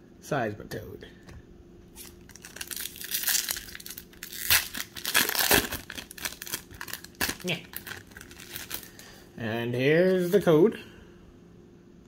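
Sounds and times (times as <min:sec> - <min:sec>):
foil wrapper crinkling and tearing: 0:02.0 - 0:09.0.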